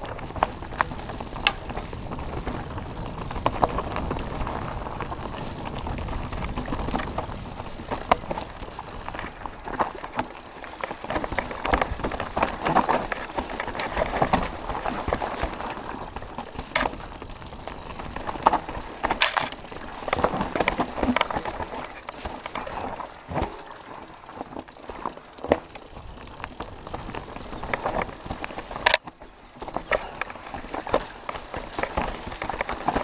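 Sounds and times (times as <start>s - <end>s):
bike rattling and knocking: 0.0s - 33.0s
tyres crunching over stones: 0.0s - 33.0s
sharp bike impacts: 6.6s - 23.8s.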